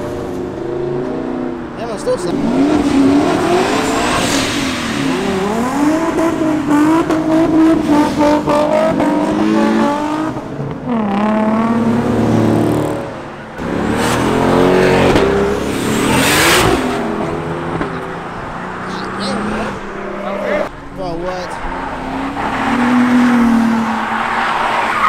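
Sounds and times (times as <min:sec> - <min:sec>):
car engines revving and accelerating: 0:00.0 - 0:25.0
car passing close by: 0:21.5 - 0:25.0.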